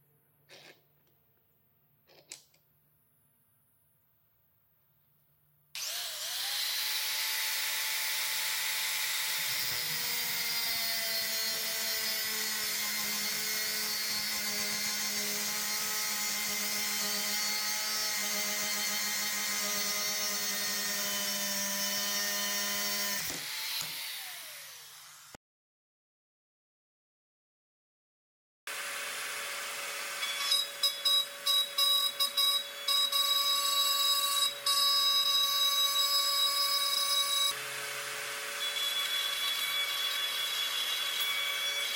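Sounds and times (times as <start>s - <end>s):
angle grinder cutting steel: 5.8s - 25.4s, 28.7s - 41.9s.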